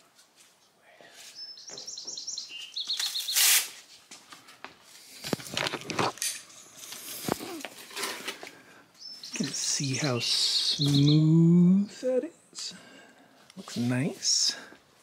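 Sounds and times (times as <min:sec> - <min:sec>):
bird chirping: 0:01.2 - 0:03.7, 0:08.9 - 0:12.8.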